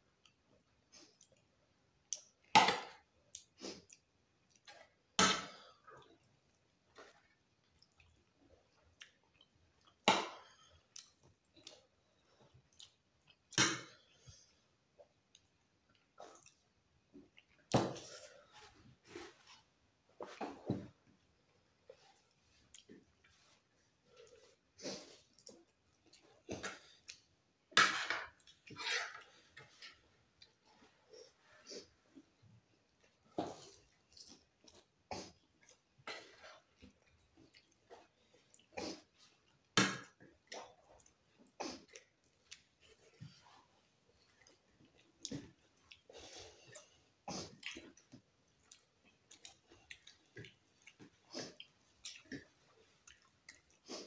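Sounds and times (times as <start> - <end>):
chewing and small clicks: 0.2 - 2.5, 5.9 - 13.6, 14.2 - 17.7, 22.1 - 23.3, 25.3 - 27.3, 32.9 - 35.9, 36.5 - 43.4, 44.2 - 54.0.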